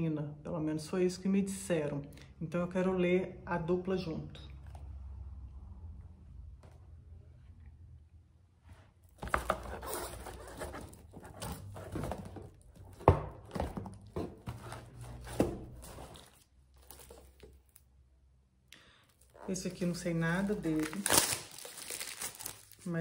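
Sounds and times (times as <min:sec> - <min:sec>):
rustling of books and packaging: 0:08.9 - 0:17.9, 0:19.0 - 0:23.0.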